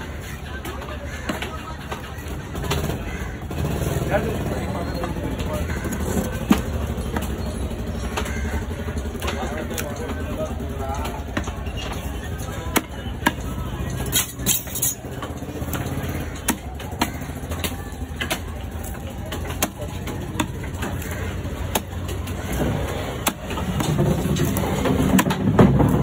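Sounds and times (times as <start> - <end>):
cleaver chopping on wooden block: 21.7 - 22.0.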